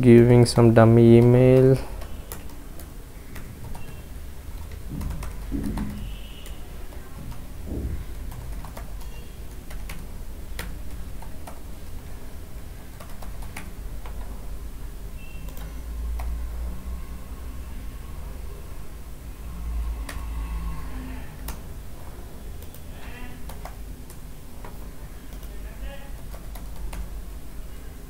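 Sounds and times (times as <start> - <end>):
keyboard typing: 0.6 - 14.4, 15.4 - 16.4, 20.0 - 20.4, 21.4 - 21.7, 22.5 - 27.2.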